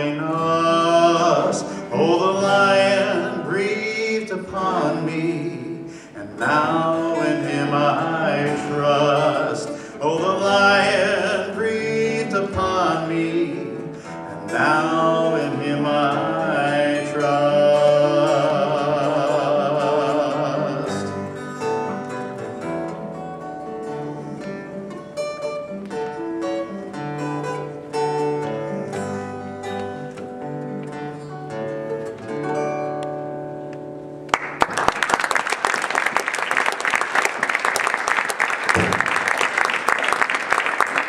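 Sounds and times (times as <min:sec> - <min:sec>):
man singing with vibrato: 0:00.0 - 0:22.2
acoustic guitar: 0:00.0 - 0:41.0
audience applause: 0:34.3 - 0:41.0.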